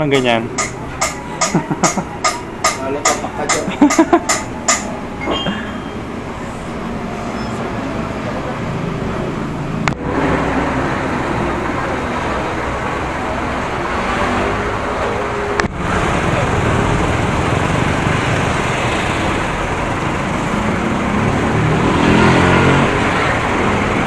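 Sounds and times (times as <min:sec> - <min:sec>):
sharp knocks: 0:00.0 - 0:05.9
street traffic rumble: 0:00.0 - 0:24.0.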